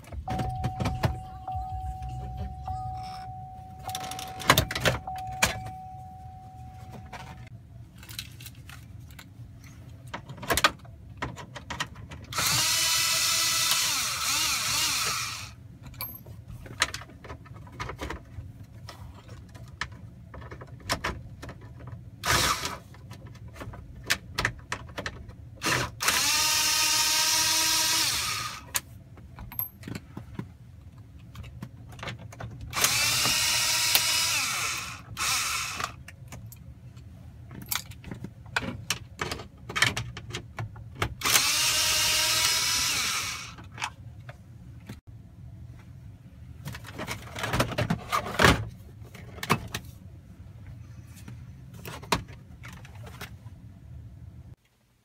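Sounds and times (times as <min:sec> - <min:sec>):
cordless screwdriver motor whirring: 0:32.8 - 0:35.9, 0:41.2 - 0:43.5.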